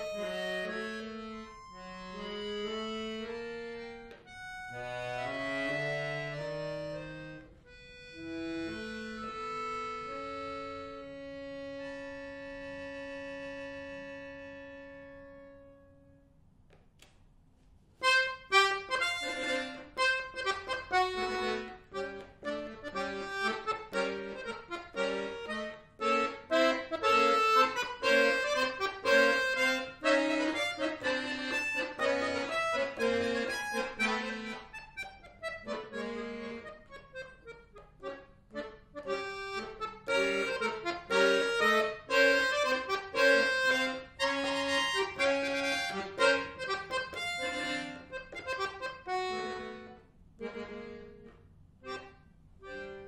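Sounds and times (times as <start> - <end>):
button accordion solo: 0.0 - 16.1, 18.0 - 53.0.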